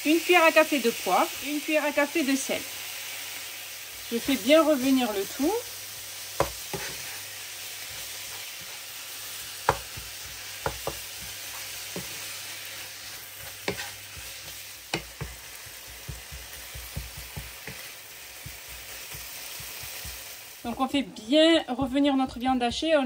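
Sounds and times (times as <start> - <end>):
meat and onion sizzling in a pan: 0.0 - 23.0
wooden spoon knocking a pan: 6.4 - 7.0, 9.7 - 11.4, 14.9 - 20.8.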